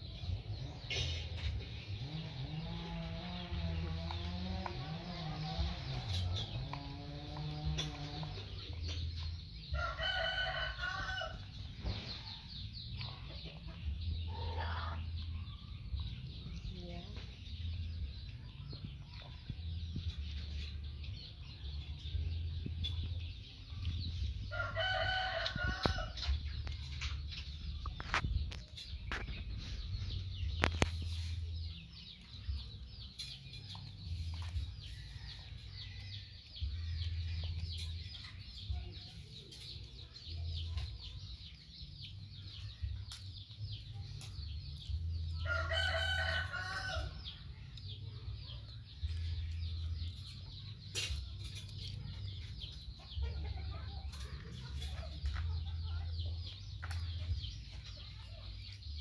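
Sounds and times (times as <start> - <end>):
rooster crowing: 9.8 - 11.4, 45.4 - 47.1.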